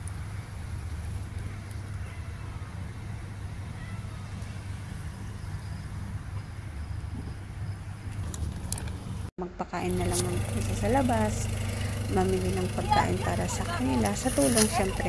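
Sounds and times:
vehicle engine running: 9.7 - 15.0.

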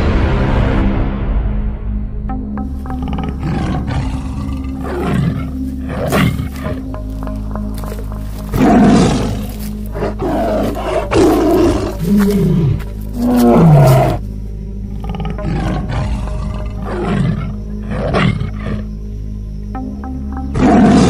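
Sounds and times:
low music drone: 0.0 - 21.0
lion growling and roaring: 2.9 - 7.0, 8.4 - 14.2, 14.9 - 18.9.

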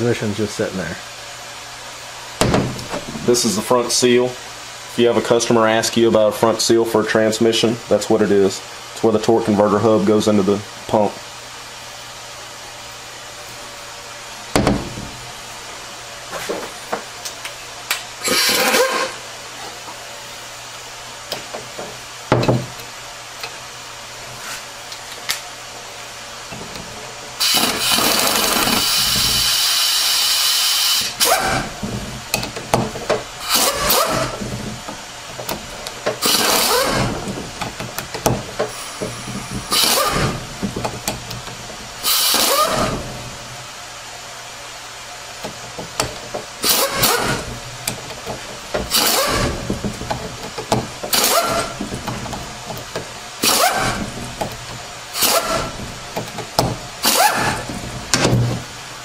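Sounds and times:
pneumatic air tool bursts: 18.2 - 19.2, 27.4 - 31.8, 33.4 - 34.4, 36.2 - 37.2, 38.7 - 40.4, 42.0 - 43.1, 46.6 - 47.5, 48.9 - 49.7, 51.1 - 51.8, 53.4 - 54.1, 55.1 - 55.8, 57.0 - 57.7.

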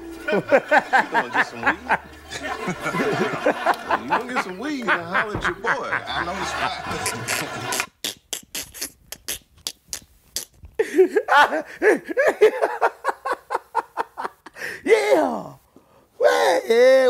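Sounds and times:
man laughing hard: 0.3 - 7.9, 10.8 - 15.1.

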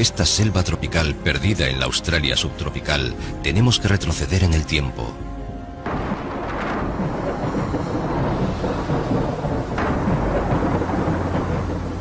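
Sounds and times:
deep rumbling: 0.0 - 12.0
steady rushing hiss: 5.2 - 12.0.

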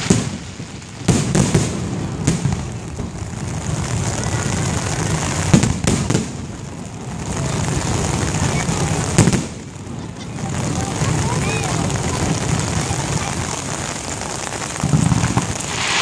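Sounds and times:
continuous fireworks noise: 0.0 - 16.0
firework shells bursting: 11.0 - 16.0.

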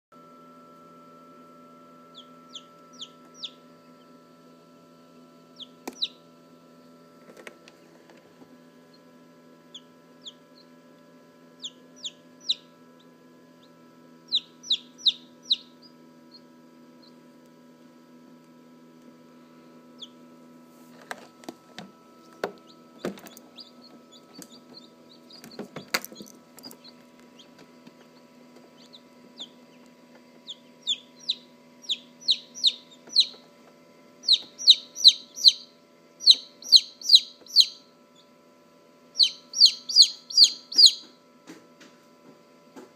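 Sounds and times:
chick peeping loudly: 2.1 - 4.0, 5.6 - 6.2, 9.7 - 10.7, 11.6 - 12.8, 14.3 - 16.4, 20.0 - 20.2, 23.5 - 25.6, 26.7 - 27.5, 28.8 - 29.8, 30.4 - 33.5, 34.2 - 38.3, 39.2 - 41.2.

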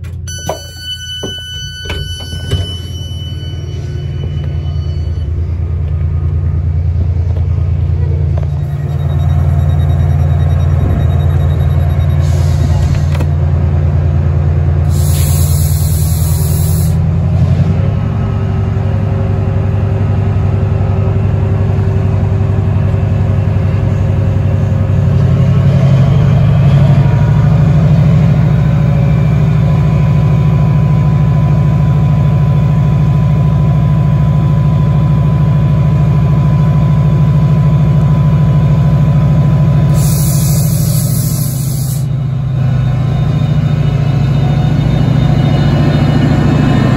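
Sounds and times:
locomotive engine drone: 0.0 - 46.9
air hisses: 14.9 - 17.0, 39.9 - 42.1.

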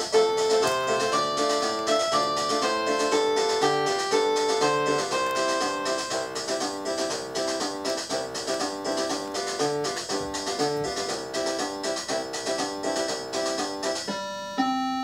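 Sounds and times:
keyboard tune over a beat: 0.0 - 15.0.

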